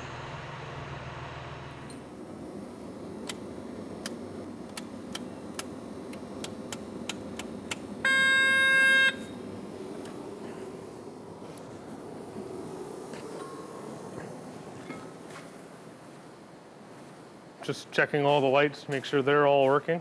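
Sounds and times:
steady low hum: 0:00.0 - 0:20.0
loud electronic beep: 0:08.1 - 0:09.3.

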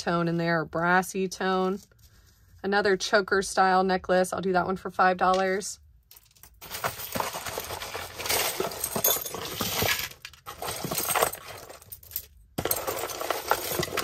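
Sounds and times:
jewelry clinking and rattling: 0:06.1 - 0:14.0.

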